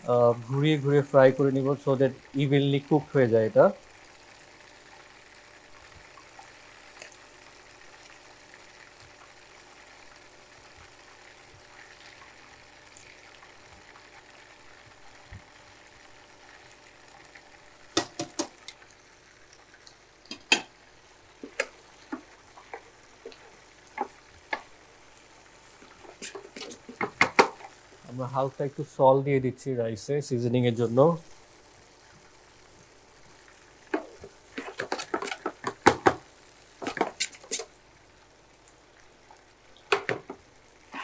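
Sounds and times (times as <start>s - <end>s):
meatballs sizzling in oil: 0.0s - 41.0s
utensils knocking against pans: 20.3s - 20.7s, 26.2s - 27.7s, 34.0s - 36.2s, 39.9s - 40.4s.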